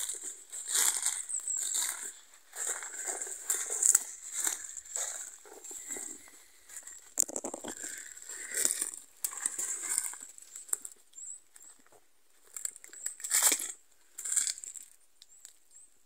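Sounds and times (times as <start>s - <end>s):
footsteps crunching on forest floor: 0.0s - 12.7s
rustling undergrowth: 0.0s - 15.4s.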